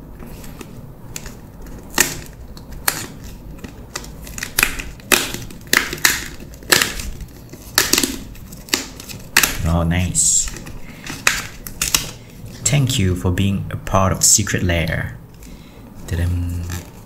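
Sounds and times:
cardboard tear strip tearing: 1.1s - 9.7s.

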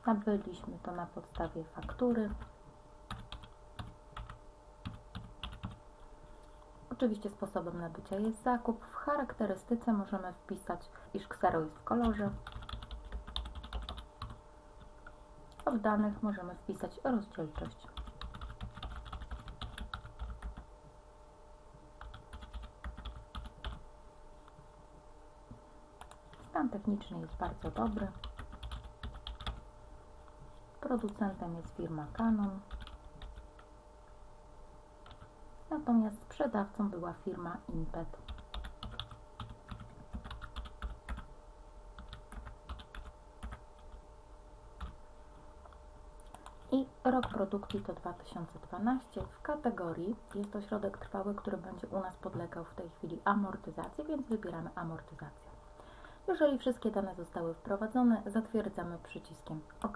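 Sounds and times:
computer keyboard typing: 1.3s - 2.5s, 3.1s - 5.8s, 12.0s - 14.4s, 17.5s - 20.6s, 22.0s - 23.8s, 27.3s - 29.6s, 32.1s - 33.7s, 38.2s - 41.3s, 42.0s - 44.0s, 46.3s - 47.9s.

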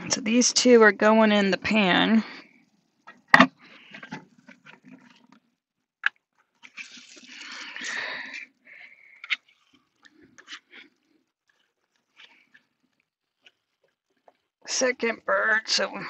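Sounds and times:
soft wet rustle: 6.3s - 15.2s.

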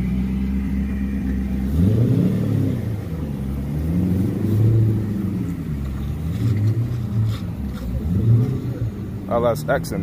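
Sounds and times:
car engine revving: 0.0s - 10.0s.

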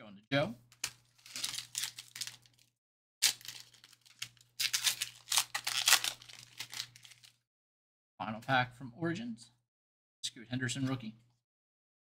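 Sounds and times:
wrapper tearing and crinkling: 0.8s - 7.4s.

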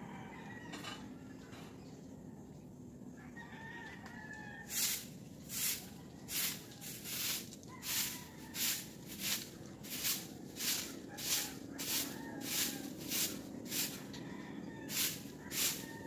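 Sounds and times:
distant rooster crowing: 0.0s - 1.6s, 3.1s - 16.0s
broom sweeping wet concrete: 4.7s - 14.1s, 14.8s - 16.0s.

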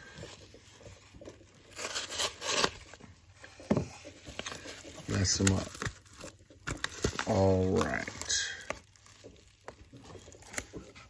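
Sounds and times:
paper mailer tearing and crinkling: 1.5s - 3.0s, 4.4s - 11.0s.

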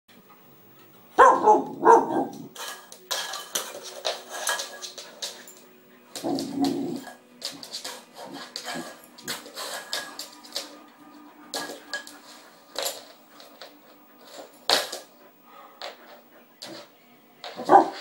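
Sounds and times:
puppy barking: 1.2s - 2.5s, 17.6s - 18.0s.

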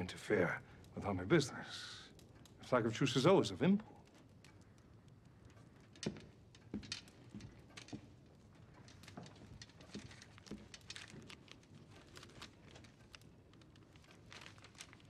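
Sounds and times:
paper crackling and rustling: 6.9s - 15.0s.

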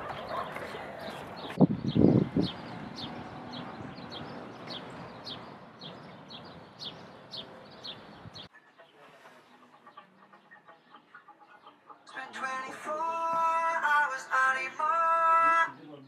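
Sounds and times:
bird chirping: 0.0s - 12.3s.

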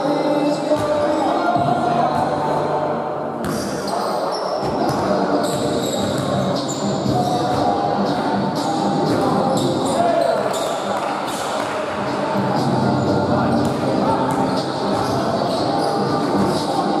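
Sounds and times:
players' voices echoing: 0.0s - 17.0s
ball bouncing on hard court: 13.6s - 15.2s.

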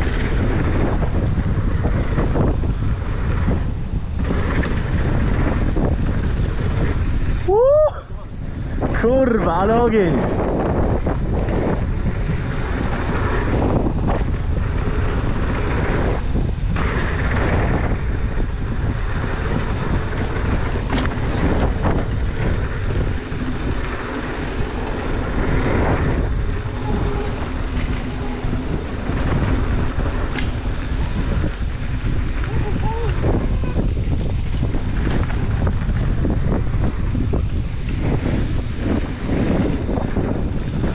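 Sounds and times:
tyres rumbling on dirt: 0.0s - 40.9s
wind on microphone: 0.0s - 40.9s
bike knocking over bumps: 12.7s - 40.9s.

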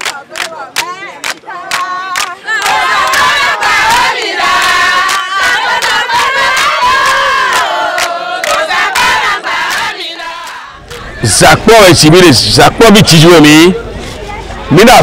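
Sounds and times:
rhythmic hand-clapping: 0.0s - 11.0s
women singing and chanting: 0.0s - 11.2s.

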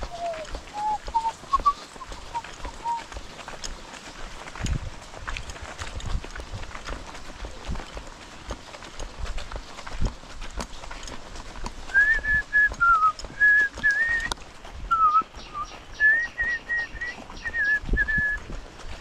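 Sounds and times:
footsteps on wet gravel: 0.0s - 19.0s
person whistling a tune: 0.1s - 3.0s, 11.9s - 14.3s, 14.9s - 15.3s, 16.0s - 18.4s.

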